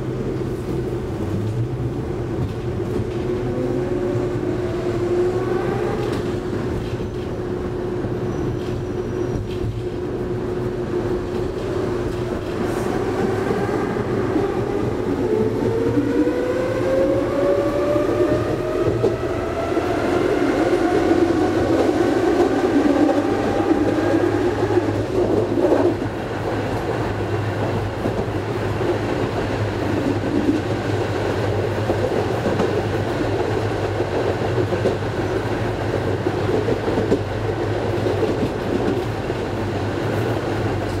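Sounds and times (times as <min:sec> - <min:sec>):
tram wheels rolling on rails: 0:00.0 - 0:41.0
tram motor whine rising: 0:02.8 - 0:26.1.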